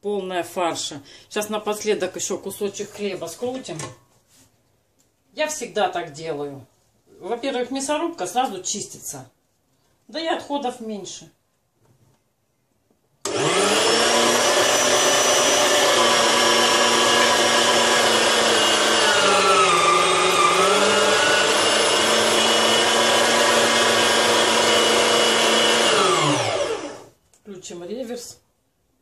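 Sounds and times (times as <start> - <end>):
meat grinder motor whining: 13.2 - 27.1.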